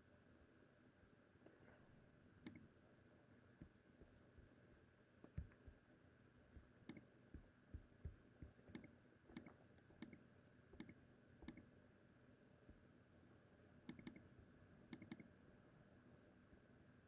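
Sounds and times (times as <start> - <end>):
computer mouse clicking: 2.4 - 2.7, 6.8 - 10.2, 10.8 - 11.7, 13.9 - 14.3, 14.9 - 15.3.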